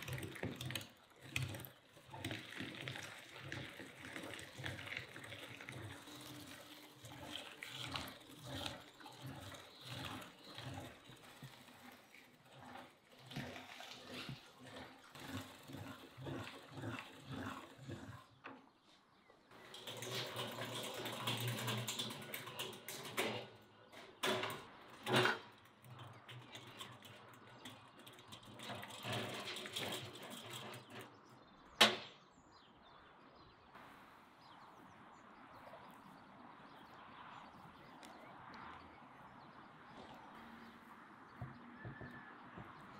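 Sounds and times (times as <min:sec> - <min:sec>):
meat grinder grinding: 0:00.0 - 0:18.4, 0:19.5 - 0:23.4.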